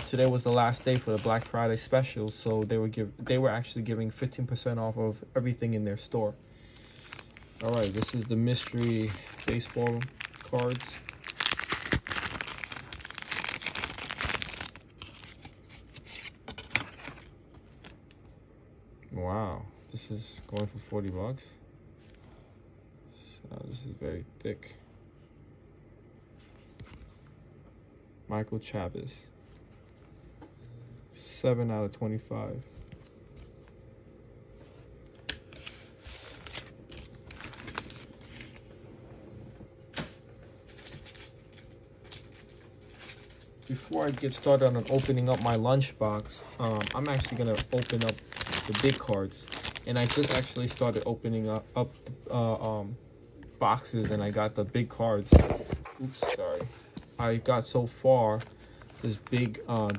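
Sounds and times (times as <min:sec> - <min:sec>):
plastic bag crinkling: 0:00.0 - 0:02.6, 0:06.7 - 0:17.9, 0:35.5 - 0:38.6, 0:40.7 - 0:51.6, 0:58.2 - 0:59.9.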